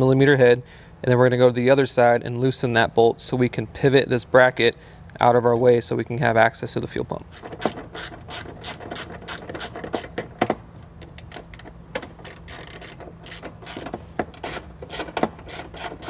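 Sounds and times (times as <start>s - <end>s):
socket ratchet clicking: 7.3s - 16.0s.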